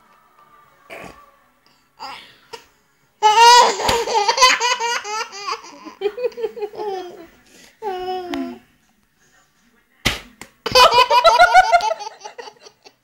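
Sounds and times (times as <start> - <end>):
baby giggling: 3.2 - 7.2.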